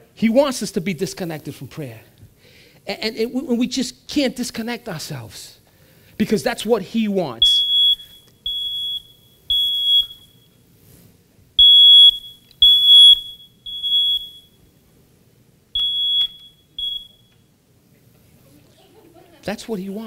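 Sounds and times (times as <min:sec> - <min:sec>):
smoke alarm beeping: 0:07.4 - 0:10.7, 0:11.6 - 0:14.9, 0:15.7 - 0:17.6.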